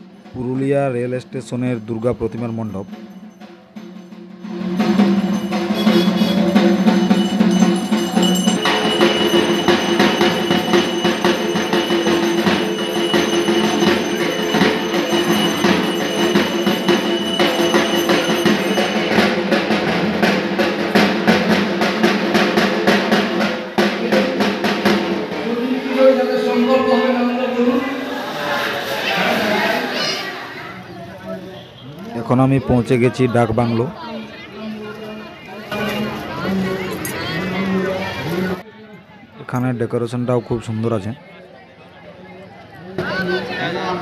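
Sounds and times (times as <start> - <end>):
steady ringing tones: 1.7 - 20.0
barrel drums beaten with sticks: 2.4 - 25.4.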